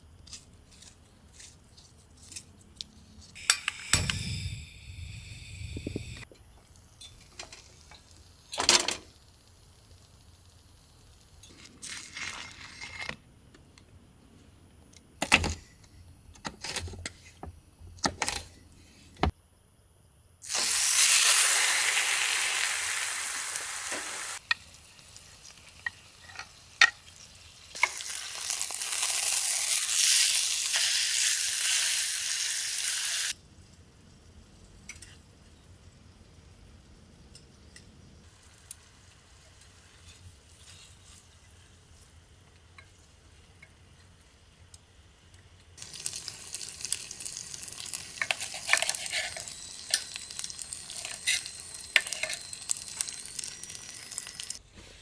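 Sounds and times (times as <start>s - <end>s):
food sizzling in a hot pan: 20.4s - 33.4s, 45.8s - 54.6s.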